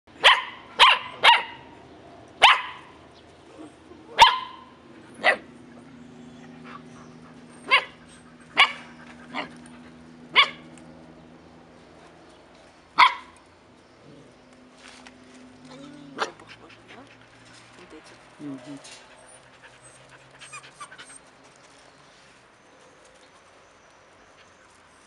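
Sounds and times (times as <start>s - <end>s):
puppies barking: 0.2s - 1.8s, 2.4s - 3.0s, 3.7s - 10.8s, 13.0s - 13.4s.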